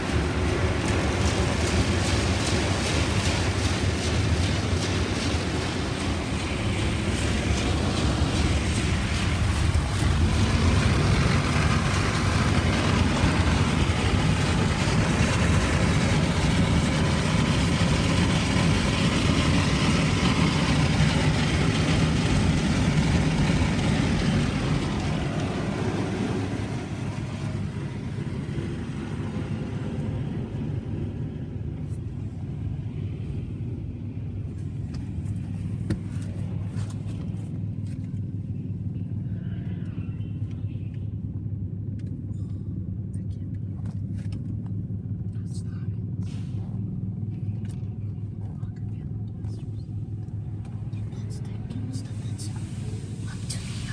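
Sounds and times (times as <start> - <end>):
car wash equipment rushing: 0.0 - 33.6, 50.2 - 53.9
low steady hum: 0.0 - 53.9.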